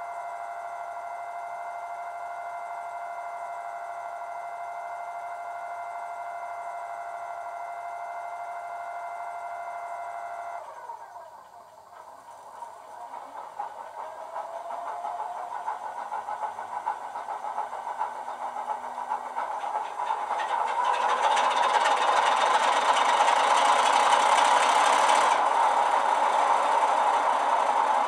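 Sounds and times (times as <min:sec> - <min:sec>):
hiss: 0:11.4 - 0:28.0
diesel engine running: 0:11.7 - 0:28.0.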